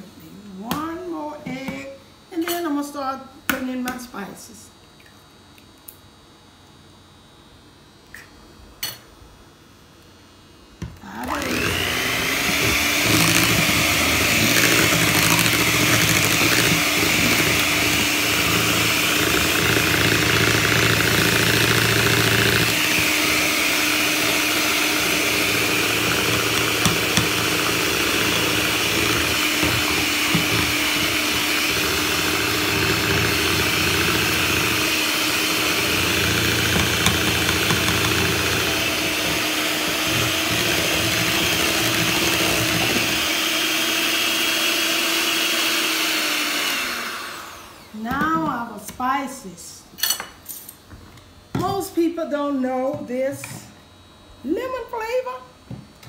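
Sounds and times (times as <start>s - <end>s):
electric hand mixer whining: 10.9s - 48.5s.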